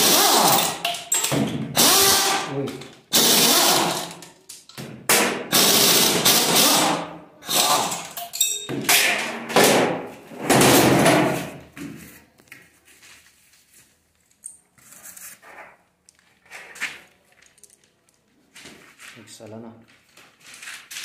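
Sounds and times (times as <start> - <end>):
air impact wrench running: 0.0 - 4.2, 5.5 - 8.2.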